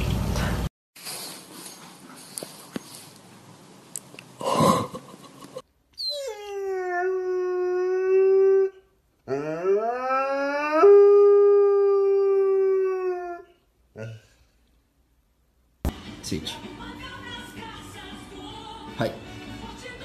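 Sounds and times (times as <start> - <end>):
dog howling: 6.0 - 13.6.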